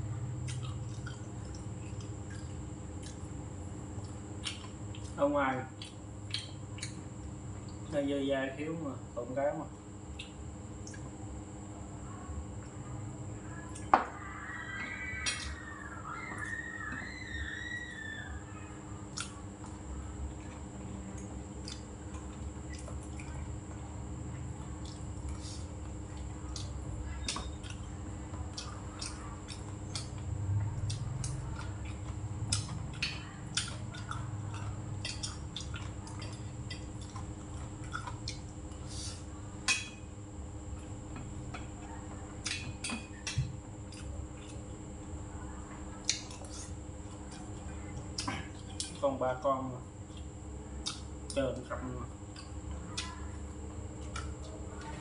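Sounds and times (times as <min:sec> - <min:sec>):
faint hum and high whine: 0:00.0 - 0:55.0.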